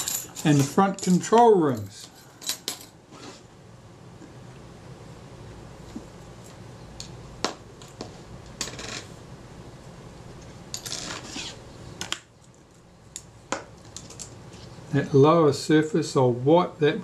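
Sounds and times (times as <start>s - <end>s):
metal rings rattling: 0.0s - 3.0s.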